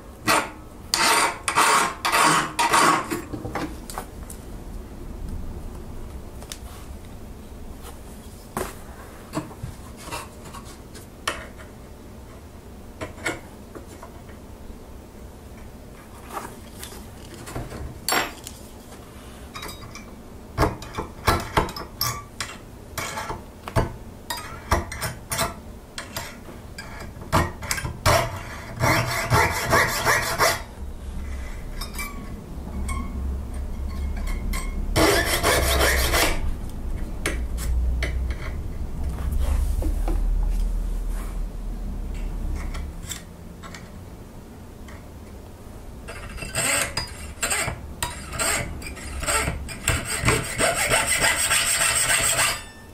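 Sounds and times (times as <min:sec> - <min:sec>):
files scraping metal: 0:00.2 - 0:03.3, 0:27.7 - 0:33.1, 0:33.9 - 0:36.5, 0:46.1 - 0:52.9
low hum: 0:29.6 - 0:46.1.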